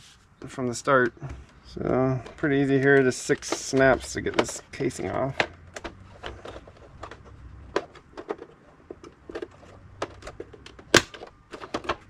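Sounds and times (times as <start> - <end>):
plastic clips snapping: 2.8 - 12.0.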